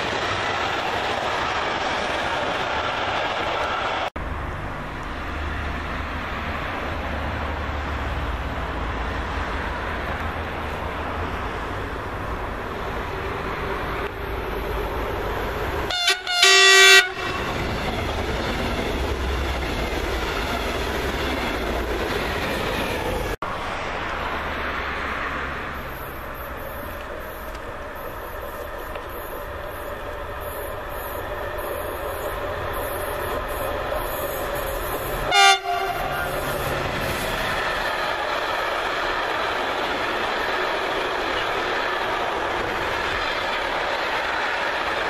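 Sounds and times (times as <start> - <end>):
train wheels rumbling and clattering: 0.0 - 16.3, 17.0 - 45.0
train horn: 15.9 - 17.6, 35.2 - 36.7.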